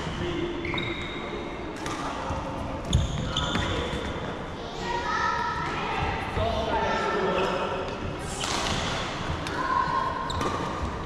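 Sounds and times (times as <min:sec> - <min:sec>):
voices echoing in a hall: 0:00.0 - 0:11.0
shoes squeaking on wooden floor: 0:00.6 - 0:01.3, 0:02.9 - 0:04.0.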